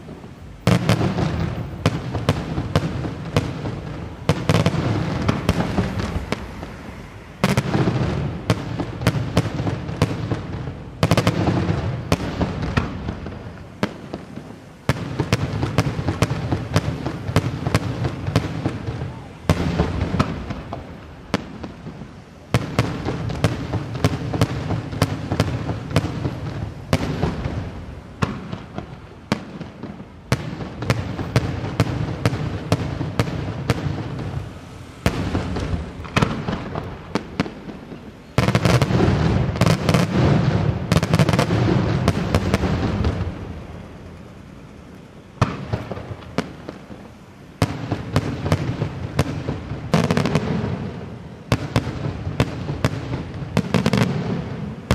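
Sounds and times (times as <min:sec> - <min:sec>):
fireworks bursting with sharp bangs: 0:00.0 - 0:54.9.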